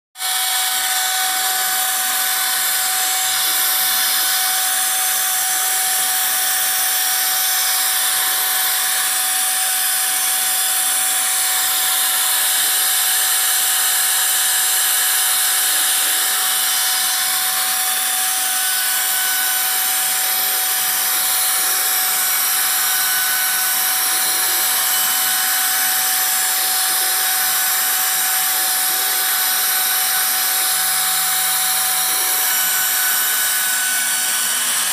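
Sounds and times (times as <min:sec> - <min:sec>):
router spindle whining: 0:00.2 - 0:34.9
bit cutting into board hiss: 0:10.9 - 0:34.6.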